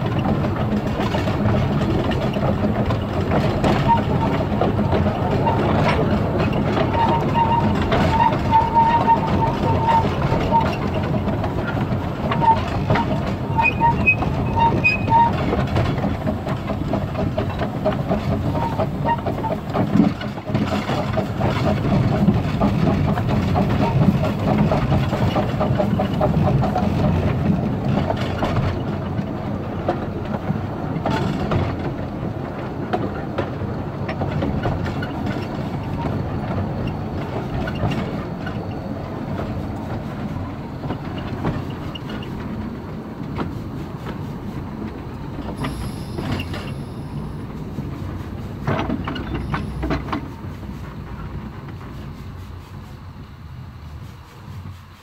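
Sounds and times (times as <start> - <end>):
steam locomotive rhythmic beat: 0.0 - 29.0, 34.9 - 55.0
wheels clattering on rails: 0.0 - 55.0.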